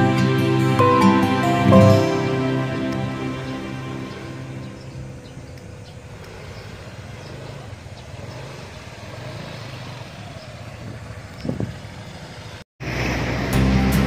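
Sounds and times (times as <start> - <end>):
brief rising sound: 0.6 - 5.2
scooters riding past: 1.8 - 14.0.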